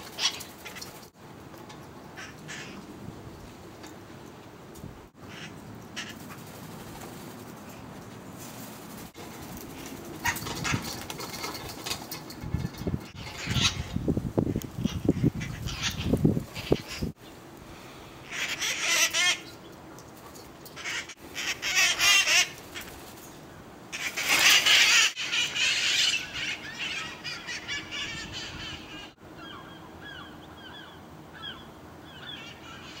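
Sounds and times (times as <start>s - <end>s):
parakeets squawking: 13.1s - 14.0s, 14.8s - 17.1s, 18.2s - 19.5s, 20.8s - 22.9s, 24.0s - 33.0s
faint chirping calls: 20.6s - 33.0s.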